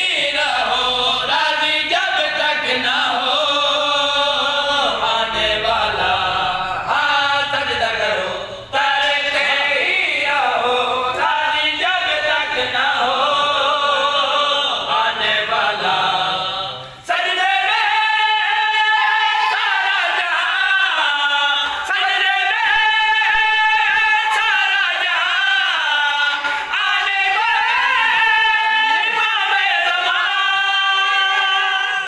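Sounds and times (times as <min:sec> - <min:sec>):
unaccompanied devotional singing: 0:00.0 - 0:32.0.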